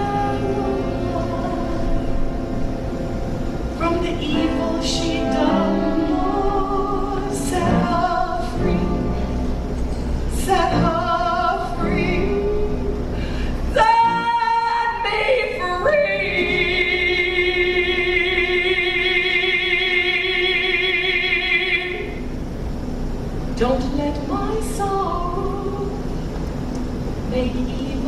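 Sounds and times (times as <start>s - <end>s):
woman singing: 0.0s - 2.2s, 3.8s - 9.3s, 10.3s - 13.1s, 13.7s - 22.2s, 23.6s - 26.0s, 27.3s - 28.0s.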